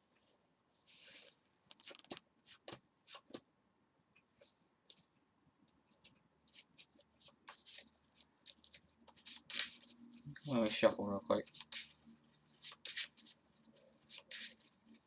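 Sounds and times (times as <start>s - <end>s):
trading cards being handled: 0.9s - 3.4s, 6.0s - 15.0s.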